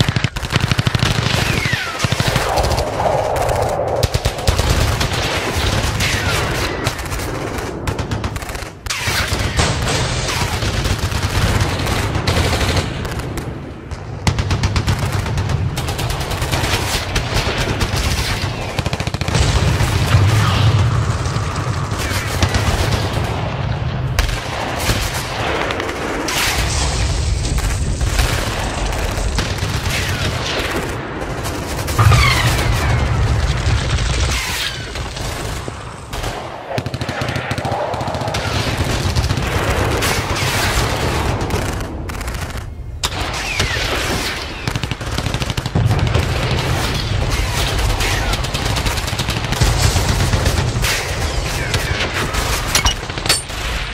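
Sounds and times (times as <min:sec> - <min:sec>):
airsoft guns firing bursts: 0:00.0 - 0:02.4, 0:44.2 - 0:46.0.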